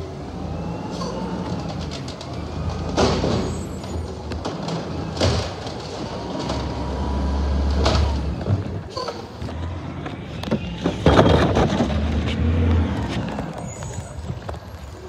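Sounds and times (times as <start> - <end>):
garbage truck engine running: 0.0 - 15.0
hydraulic arm lifting cart: 0.0 - 15.0
sharp bangs of cart emptying: 2.7 - 7.0, 10.5 - 12.3.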